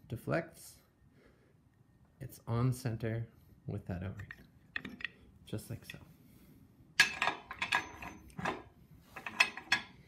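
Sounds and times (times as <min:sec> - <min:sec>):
steel tools clinking and rattling: 0:04.8 - 0:05.2, 0:07.0 - 0:10.0.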